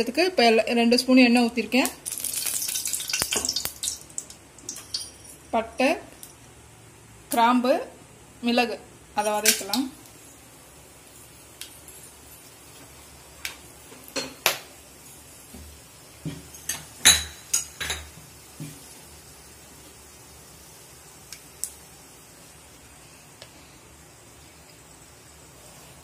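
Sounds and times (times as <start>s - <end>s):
spices frying in oil: 0.0s - 26.0s
metallic clinks and pops: 2.0s - 6.4s, 11.2s - 12.8s.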